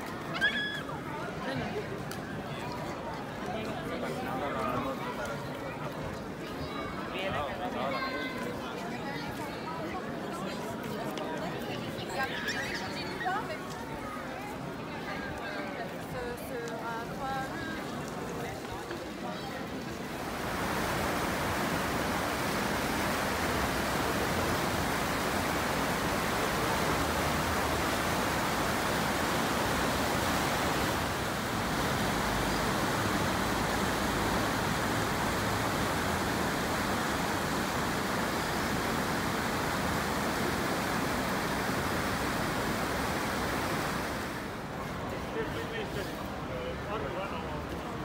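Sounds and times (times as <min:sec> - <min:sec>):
river water rushing over weirs: 0:17.2 - 0:45.3.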